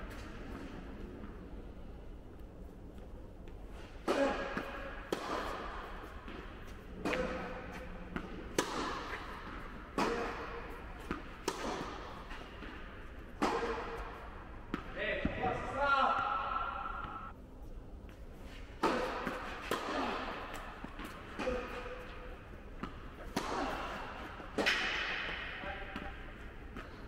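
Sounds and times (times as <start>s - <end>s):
tennis ball hitting racket strings: 3.8s - 15.0s, 18.8s - 27.0s
tennis ball bouncing on court: 4.0s - 15.6s, 18.8s - 27.0s.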